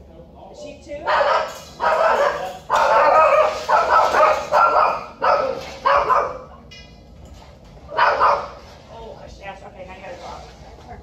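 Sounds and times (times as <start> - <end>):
dogs barking in kennel: 1.0 - 6.6, 7.9 - 8.8.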